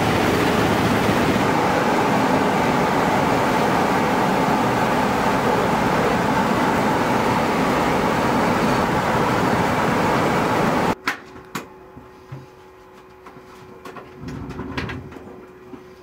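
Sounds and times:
aircraft engines din: 0.0 - 11.0.

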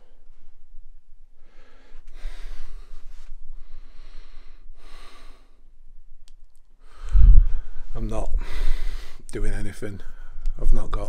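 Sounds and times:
man breathing: 1.3 - 5.8, 6.8 - 9.3, 10.0 - 10.6.

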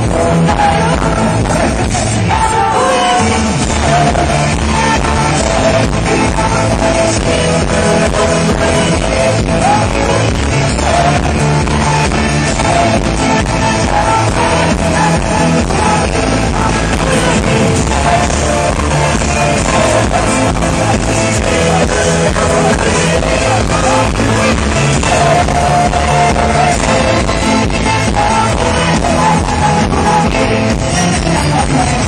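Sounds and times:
amplified dance-pop music: 0.0 - 32.0
man singing: 0.0 - 32.0.

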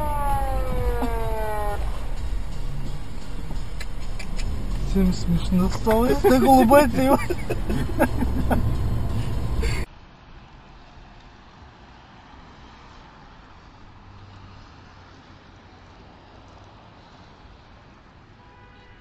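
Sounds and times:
loud in-car rumble: 0.0 - 9.9
engine and road noise hum: 0.0 - 18.7.

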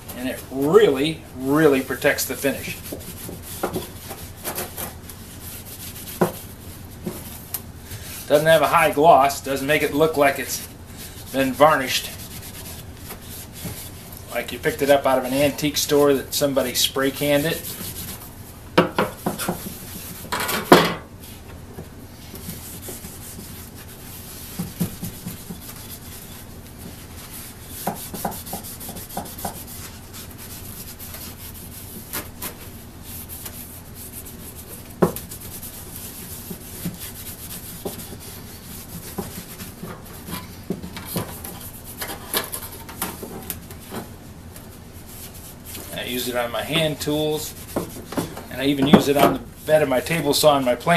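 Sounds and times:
cloth rubbing wax on wood: 0.2 - 20.3, 22.1 - 42.1, 44.6 - 50.7
saw knocking on wooden bench: 18.8 - 19.7, 27.8 - 29.6.

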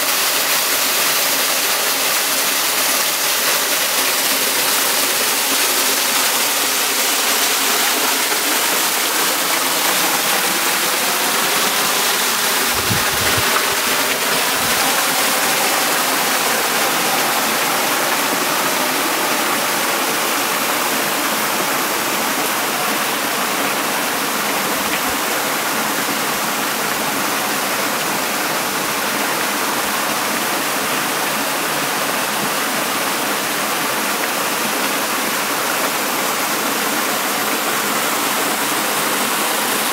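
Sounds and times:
water cascade splashing: 0.0 - 39.9.

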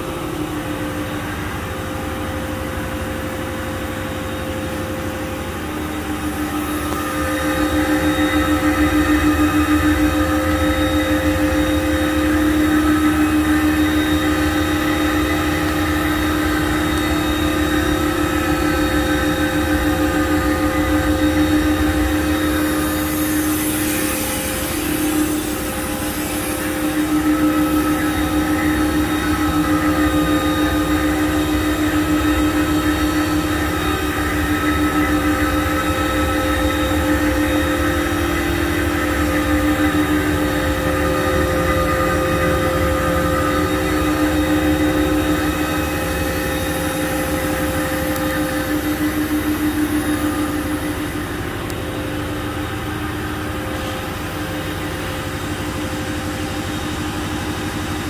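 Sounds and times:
mechanical drone: 0.0 - 58.0.

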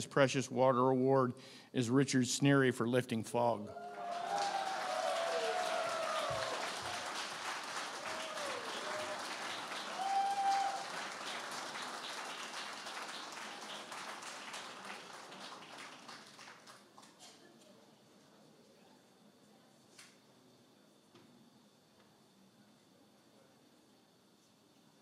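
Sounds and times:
cheers and whoops: 3.7 - 12.4
audience applauding: 3.7 - 17.0.

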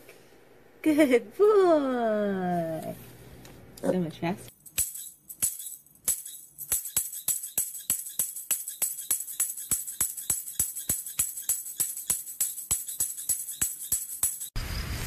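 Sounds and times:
metallic jingle strikes: 4.5 - 14.6.

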